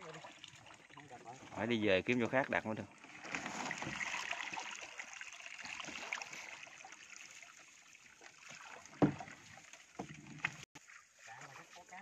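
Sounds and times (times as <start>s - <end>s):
small water drips: 0.0s - 12.0s
water trickling and splashing: 0.0s - 12.0s.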